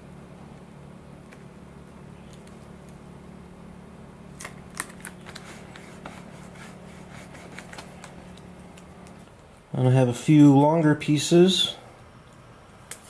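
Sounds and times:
steady low hum: 0:00.0 - 0:13.0
tape peeling crackles: 0:02.2 - 0:03.0, 0:04.3 - 0:09.6.

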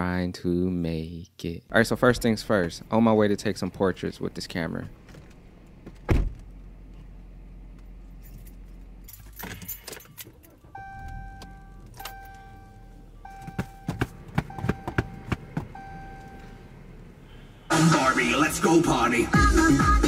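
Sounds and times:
key ring jangling: 0:08.1 - 0:10.5
dashboard warning chime: 0:09.2 - 0:16.8.

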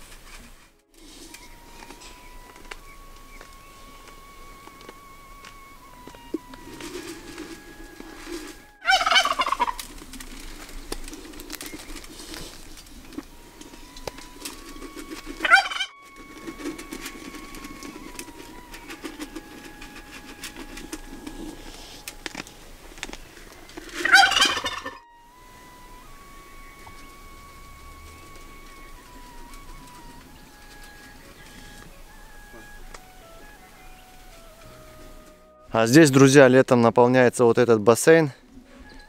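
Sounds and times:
turkey gobbling: 0:05.7 - 0:35.8.

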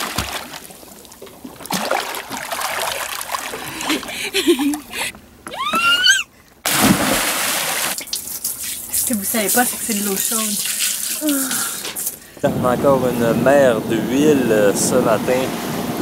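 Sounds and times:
water splashing around swimmer: 0:00.0 - 0:04.9, 0:06.6 - 0:12.2
short rising whoop: 0:05.5 - 0:06.3.

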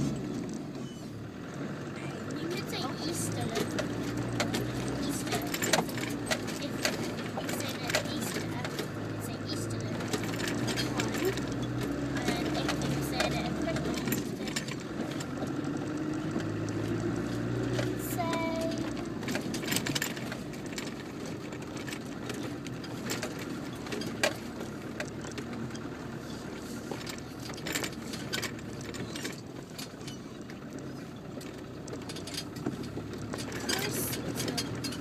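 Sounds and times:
engine running at low speed: 0:00.0 - 0:35.0
vehicle knocks and rattles: 0:00.0 - 0:35.0.

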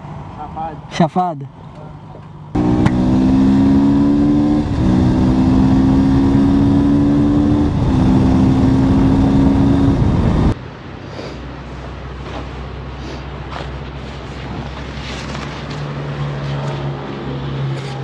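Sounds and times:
motorcycle engine accelerating: 0:02.6 - 0:10.6
wind noise: 0:02.6 - 0:10.6.

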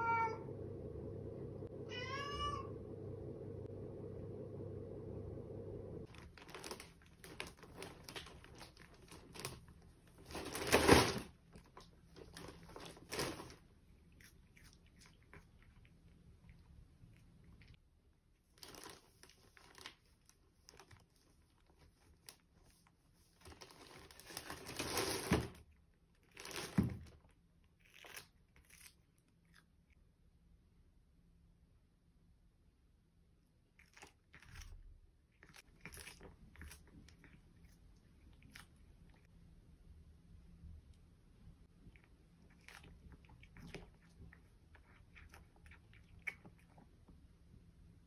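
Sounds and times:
plastic bag rustling: 0:06.0 - 0:13.6, 0:18.6 - 0:20.0, 0:23.4 - 0:25.6.

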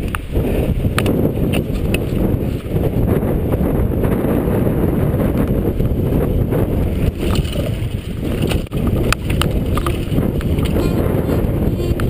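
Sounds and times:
bike clicks and rattles: 0:00.0 - 0:03.0, 0:06.9 - 0:12.0
wind buffeting microphone: 0:00.0 - 0:12.0.

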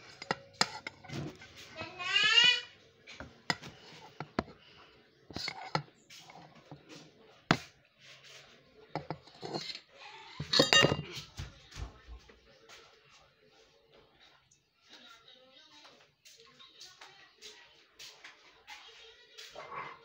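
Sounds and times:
dishes and cutlery clinking: 0:00.0 - 0:11.9.

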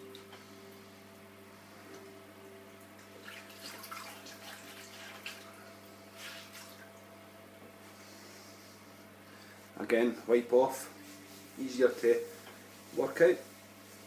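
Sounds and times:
steady low hum: 0:00.0 - 0:14.0
water splashing in sink: 0:03.2 - 0:05.6.

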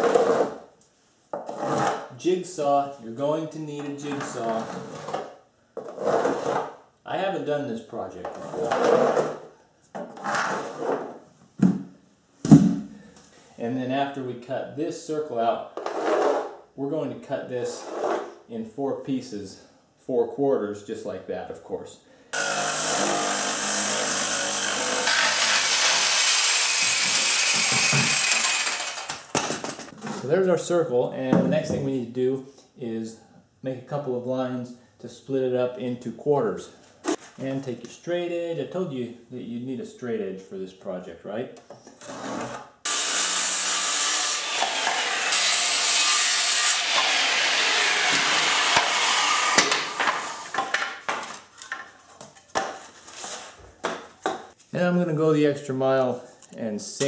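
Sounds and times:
jigsaw sawing plywood: 0:22.4 - 0:29.2, 0:42.1 - 0:50.6
wooden pieces knocking: 0:49.6 - 0:52.8.

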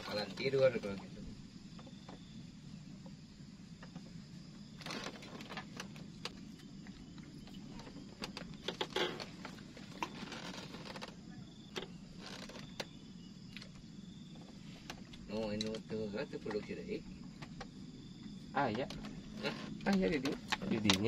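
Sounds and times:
steady low hum: 0:00.0 - 0:10.2
fishing tackle clicks and knocks: 0:18.7 - 0:21.0.

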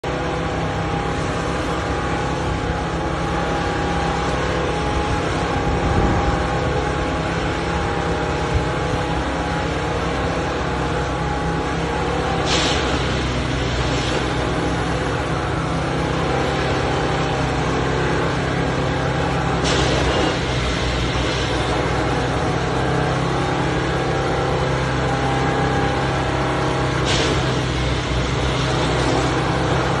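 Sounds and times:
diesel and hydraulic drone: 0:00.0 - 0:30.0
machine whine: 0:00.0 - 0:30.0.

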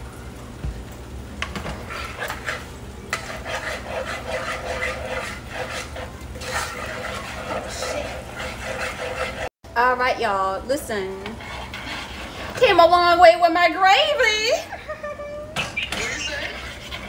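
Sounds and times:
spoon scraping metal saucepan: 0:01.8 - 0:09.5, 0:11.1 - 0:12.9, 0:15.6 - 0:17.0.

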